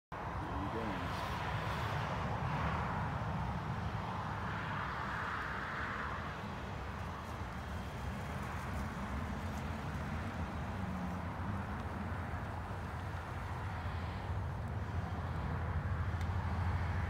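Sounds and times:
car driving over snow: 3.9 - 17.0.

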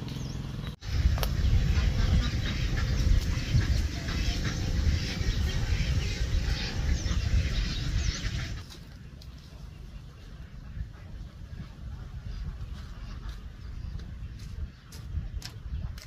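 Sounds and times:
loud low rumbling: 0.0 - 8.6
ducks quacking: 0.9 - 8.8, 9.5 - 15.0.

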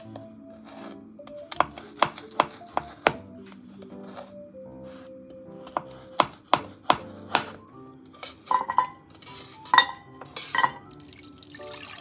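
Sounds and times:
knife chopping on cutting board: 0.8 - 3.3, 5.5 - 7.6
knife scraping into metal pot: 8.1 - 10.9
metal clinks on pot: 8.2 - 11.0.

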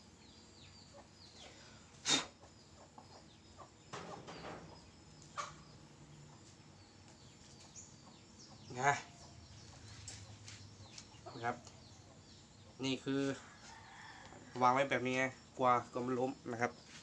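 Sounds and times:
chicken clucking: 2.4 - 6.5.

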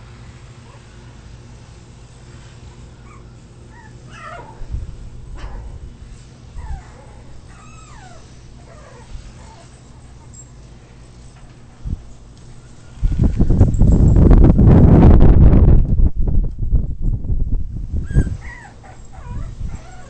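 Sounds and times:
puppy whimpering and yipping: 3.0 - 4.6, 6.6 - 10.4, 18.0 - 20.0.

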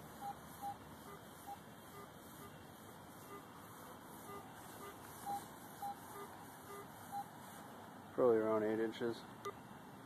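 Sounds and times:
metal detector beeping: 0.0 - 2.6, 3.2 - 3.6, 4.2 - 7.3.

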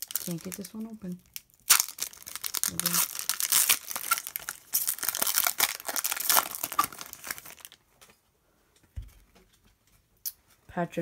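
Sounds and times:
foil wrapper crinkling as torn open: 0.0 - 7.8.

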